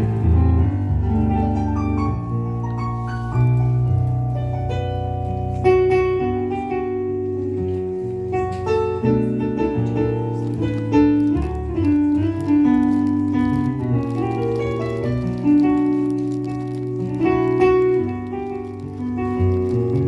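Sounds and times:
jazz piano chords: 0:00.0 - 0:20.0
low bass piano notes: 0:00.0 - 0:20.0.

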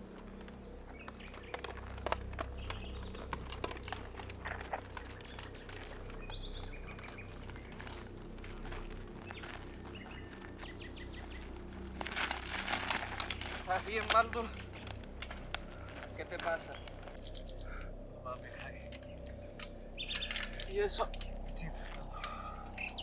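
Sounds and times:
birds chirping: 0:00.0 - 0:23.0
steady low rumble: 0:00.0 - 0:23.0
clicks and crackles: 0:00.1 - 0:10.7, 0:11.4 - 0:17.2, 0:18.4 - 0:23.0.

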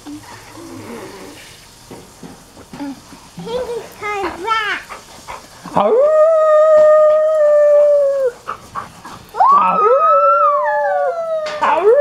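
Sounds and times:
dog howling: 0:05.8 - 0:08.4, 0:09.4 - 0:12.0.

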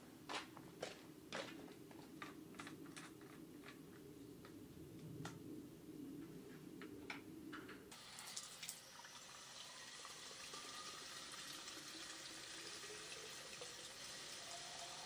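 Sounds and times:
water hissing: 0:07.9 - 0:15.0.

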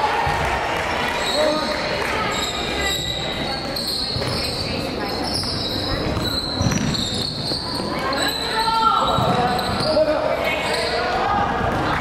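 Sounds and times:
chatter of spectators: 0:00.0 - 0:12.0
basketball bouncing on court: 0:03.6 - 0:04.6, 0:05.3 - 0:08.0, 0:09.0 - 0:10.0.

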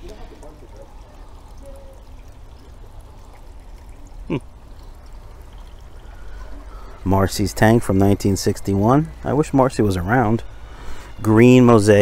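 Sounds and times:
water dripping into pond: 0:00.0 - 0:12.0.

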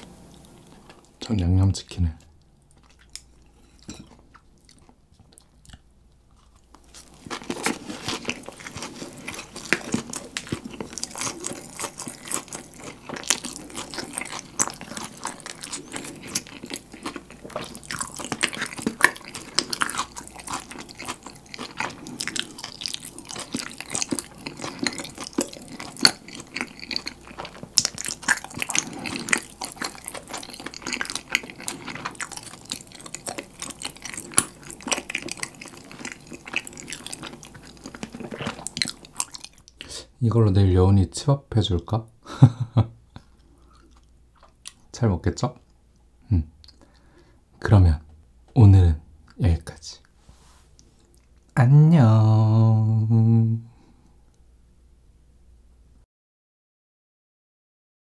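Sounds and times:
crunchy chewing: 0:02.6 - 0:39.9, 0:43.2 - 0:44.9.

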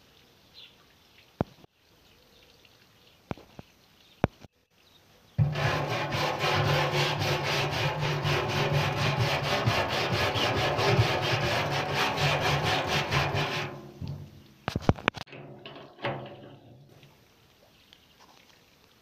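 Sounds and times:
wire brush scrubbing metal: 0:05.4 - 0:17.0.

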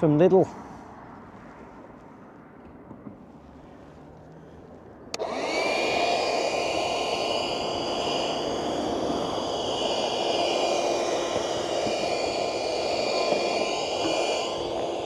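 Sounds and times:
handheld vacuum motor whine: 0:05.1 - 0:15.0.

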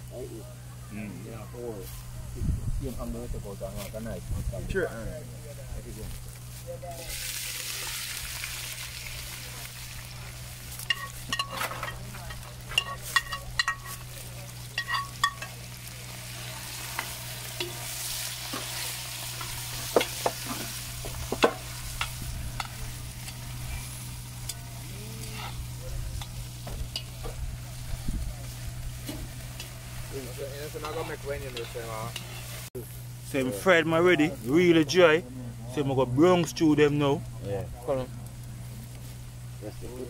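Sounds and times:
oil sizzling in deep frying: 0:06.3 - 0:33.3
metal utensil clinking on pot: 0:10.9 - 0:14.1, 0:14.8 - 0:15.6.

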